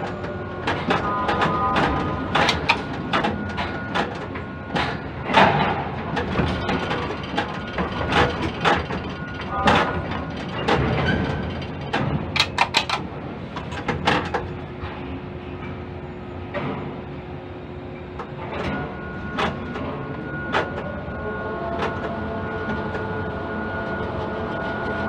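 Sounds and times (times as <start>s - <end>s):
sharp clicks and clanks: 0.0s - 15.0s
hoist drive hum: 0.0s - 23.3s.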